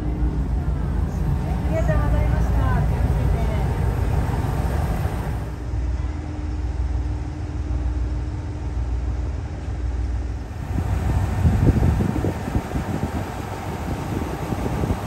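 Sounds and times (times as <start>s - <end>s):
wind gusts on microphone: 0.0s - 5.7s, 10.4s - 15.0s
diesel railcar engine idling: 0.0s - 15.0s.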